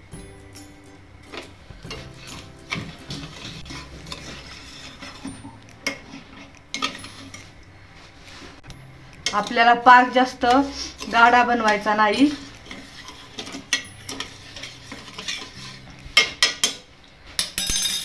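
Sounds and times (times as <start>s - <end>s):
metal spoon scraping a saucepan: 1.3s - 7.6s, 10.3s - 16.9s.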